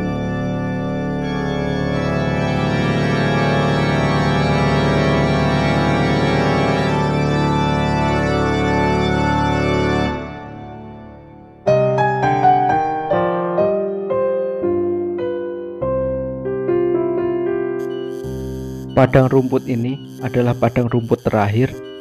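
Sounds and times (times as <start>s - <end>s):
dark organ chord: 0.0s - 12.6s, 17.8s - 22.0s
piano notes: 0.0s - 22.0s.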